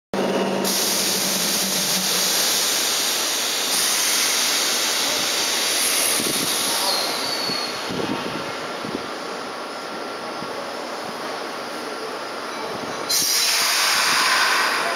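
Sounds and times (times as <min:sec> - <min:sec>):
electric train hiss: 0:00.6 - 0:07.9, 0:13.1 - 0:14.9
high squeal: 0:05.8 - 0:08.0, 0:13.1 - 0:14.9.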